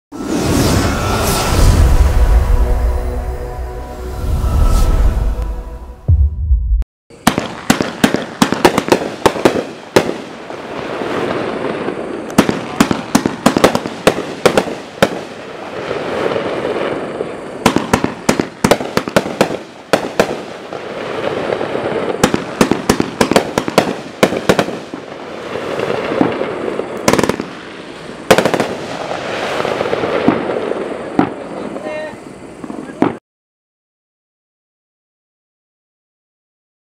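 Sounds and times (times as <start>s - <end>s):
fireworks bangs: 6.1s - 33.2s
fireworks hiss: 7.1s - 33.2s.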